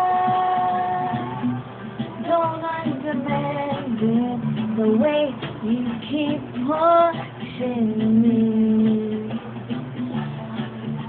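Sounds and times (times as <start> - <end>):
person singing wordless notes: 0.0 - 1.5
backing music: 0.0 - 11.0.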